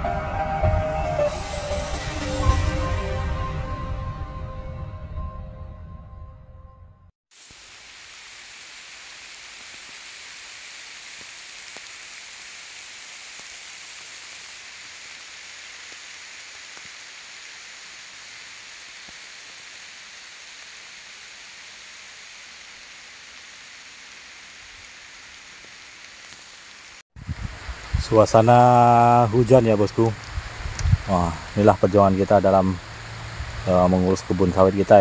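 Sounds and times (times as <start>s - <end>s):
steady rain on foliage: 7.3s - 35.0s.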